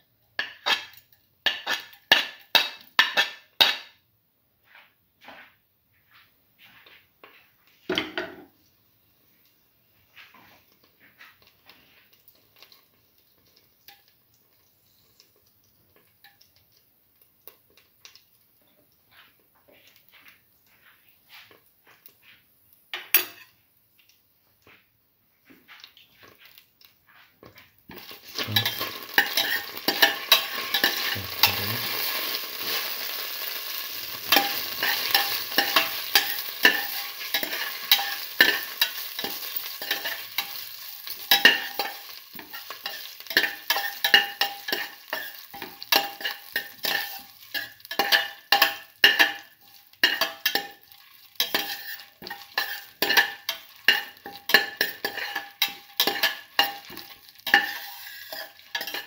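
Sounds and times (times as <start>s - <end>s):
meat and vegetables sizzling: 0.0s - 4.0s, 8.0s - 24.2s, 25.5s - 59.0s
utensil scraping a metal pot: 27.9s - 59.0s.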